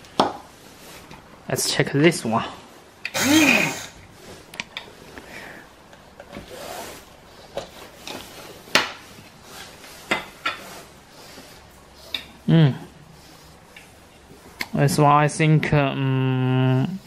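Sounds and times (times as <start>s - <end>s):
soft rubbing: 6.4s - 15.1s.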